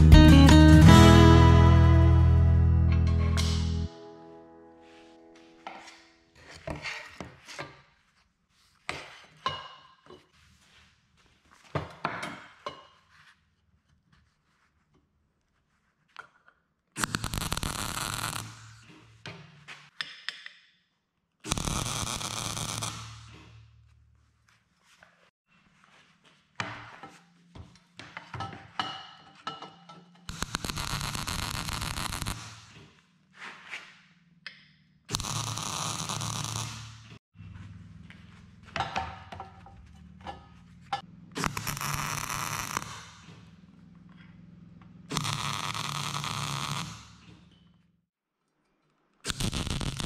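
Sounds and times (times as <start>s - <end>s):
electric arc welding crackle: 17.0s - 18.8s, 21.5s - 23.4s, 30.3s - 32.7s, 35.1s - 37.2s, 41.4s - 43.2s, 45.1s - 47.2s, 49.3s - 50.0s.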